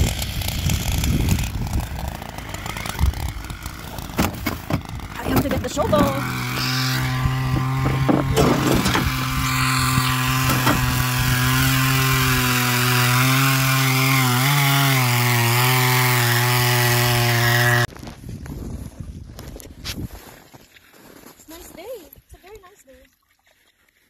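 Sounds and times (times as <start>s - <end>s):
ice auger engine drilling: 0.0s - 17.9s.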